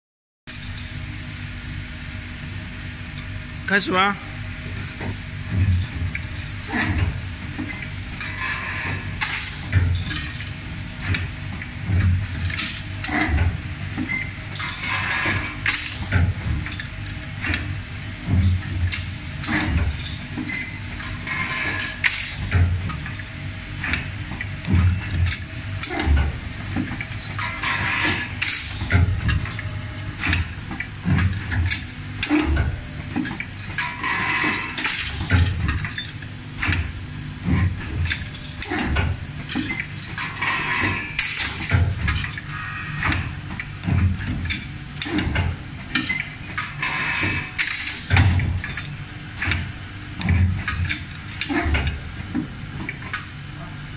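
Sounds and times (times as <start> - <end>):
vibratory feeders humming: 0.5 - 53.9
metal parts clinking and rattling: 33.2 - 36.8, 39.5 - 43.2, 47.6 - 49.5.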